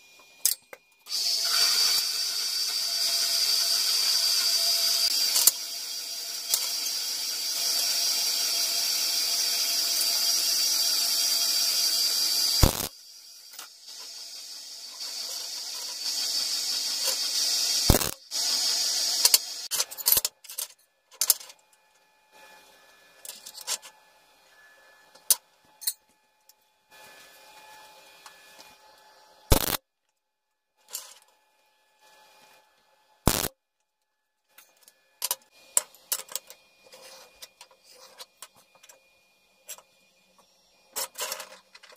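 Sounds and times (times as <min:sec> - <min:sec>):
bandsaw cutting steel: 0:01.1 - 0:20.0, 0:29.5 - 0:29.8, 0:33.3 - 0:33.5.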